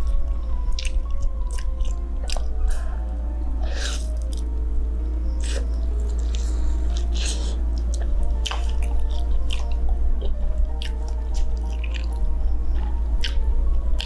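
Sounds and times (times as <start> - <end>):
quiet background music: 0.0 - 14.0
person chewing chicken: 0.8 - 2.5.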